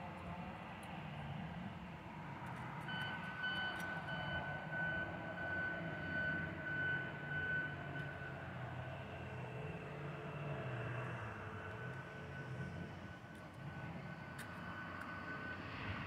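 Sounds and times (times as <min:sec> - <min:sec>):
faint high pulsing tone: 0:07.2 - 0:16.0.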